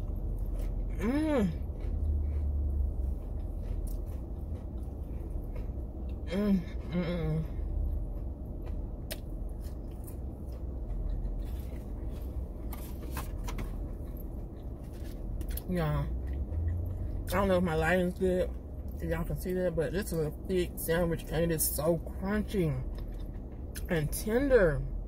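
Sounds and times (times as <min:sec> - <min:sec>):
biting and chewing crunches: 0:00.0 - 0:06.8, 0:07.6 - 0:17.4, 0:22.8 - 0:23.9
steady low hum: 0:00.0 - 0:25.0
person humming: 0:00.9 - 0:01.6.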